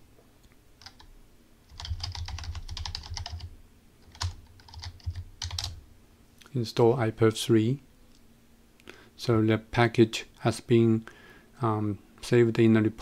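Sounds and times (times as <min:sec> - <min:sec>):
computer keyboard typing: 0:00.8 - 0:01.1, 0:01.7 - 0:05.8.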